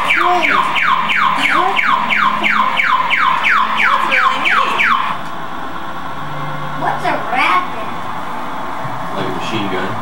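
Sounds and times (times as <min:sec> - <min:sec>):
toy electronic siren-like sweeps: 0:00.0 - 0:05.2.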